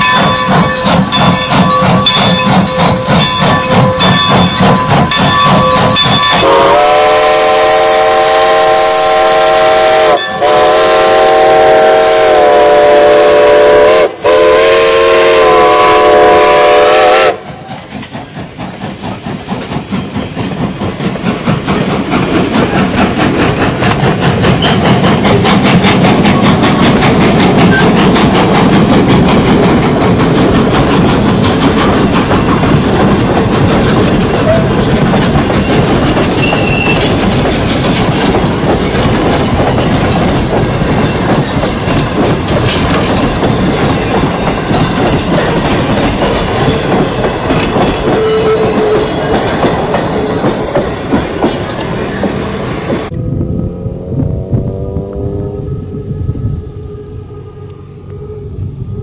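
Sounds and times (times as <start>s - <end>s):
crossing bell ringing: 0.0s - 6.8s, 10.0s - 10.7s, 32.0s - 50.4s
train wheels clattering: 0.0s - 53.1s
steam locomotive exhaust: 0.0s - 59.0s
steam whistle blasts: 5.6s - 17.7s, 48.0s - 49.4s.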